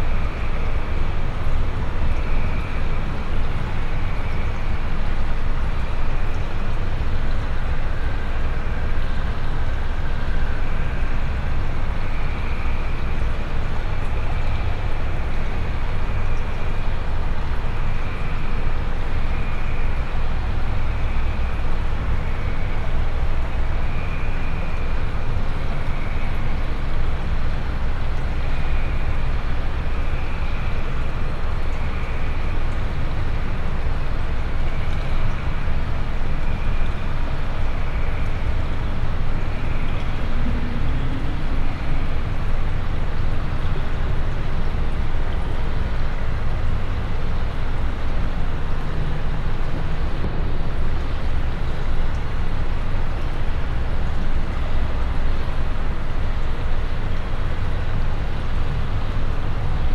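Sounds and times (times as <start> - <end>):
low droning rumble: 36.2 - 55.4
thin high noise band: 39.2 - 43.8.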